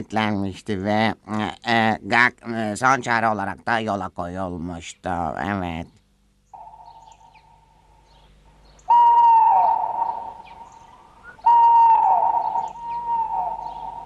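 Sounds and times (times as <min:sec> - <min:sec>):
faint steady tone: 0:06.5 - 0:14.0
cartoon hooting calls: 0:08.9 - 0:14.0.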